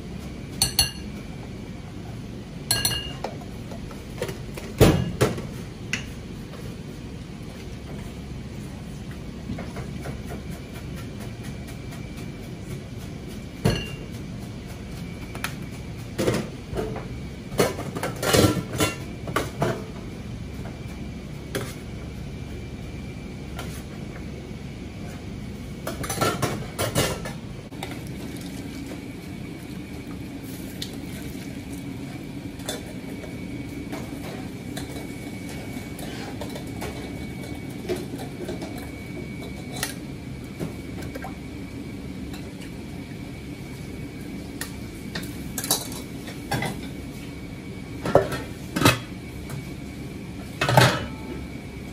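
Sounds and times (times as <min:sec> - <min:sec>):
kitchen hum: 0:00.0 - 0:51.9
dishes and utensils clinking: 0:00.6 - 0:01.1, 0:02.7 - 0:03.4, 0:13.6 - 0:14.2.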